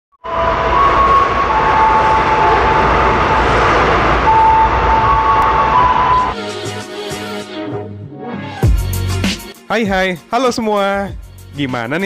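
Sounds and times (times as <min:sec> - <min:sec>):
high steady train tones: 0:00.1 - 0:07.5
music: 0:05.3 - 0:12.0.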